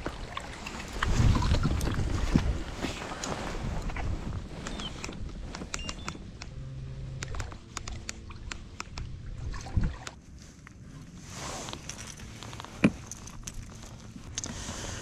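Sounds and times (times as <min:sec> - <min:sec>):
sharp clicks and light knocks: 0:07.2 - 0:09.1.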